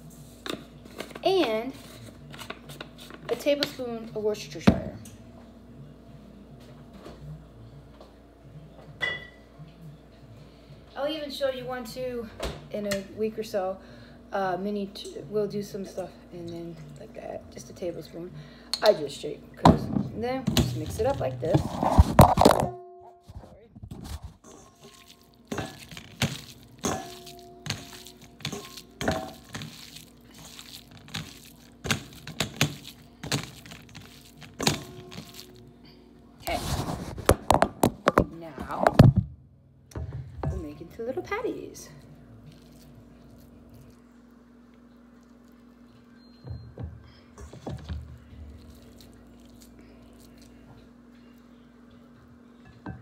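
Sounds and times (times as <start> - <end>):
hand kneading ground meat: 24.0 - 35.6, 48.2 - 50.7.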